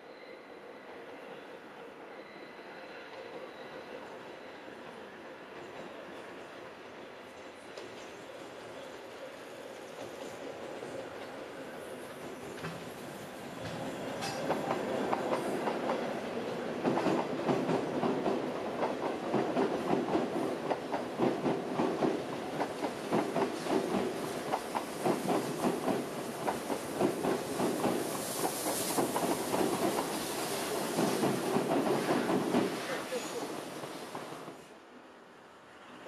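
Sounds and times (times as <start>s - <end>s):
train wheels clickety-clack: 12.0s - 34.6s.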